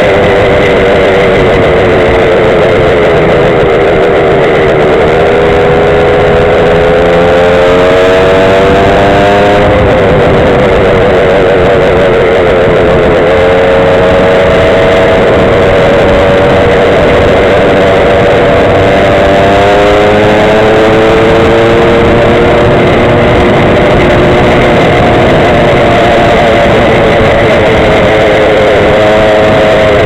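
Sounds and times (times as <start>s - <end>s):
scooter engine whining: 0.0s - 30.0s
wind rushing: 0.0s - 30.0s.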